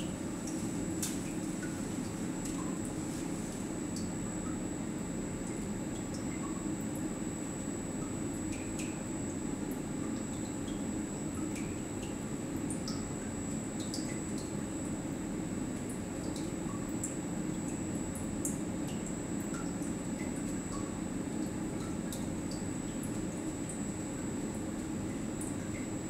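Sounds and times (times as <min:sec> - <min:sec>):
pump humming with high whine: 0:00.0 - 0:26.0
liquid drips and ticks: 0:00.1 - 0:26.0.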